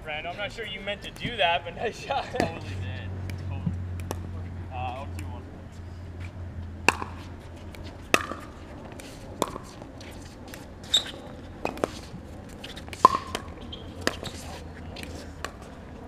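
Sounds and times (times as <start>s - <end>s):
paddles striking ball: 3.2s - 4.4s, 6.8s - 15.7s
ball bouncing on court: 3.2s - 5.3s, 6.8s - 15.8s.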